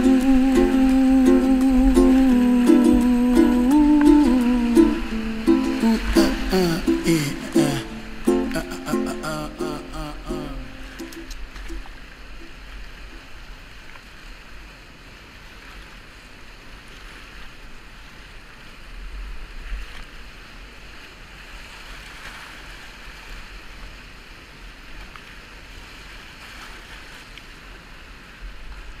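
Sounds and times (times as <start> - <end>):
whitewater rapid roaring: 0.0 - 13.7.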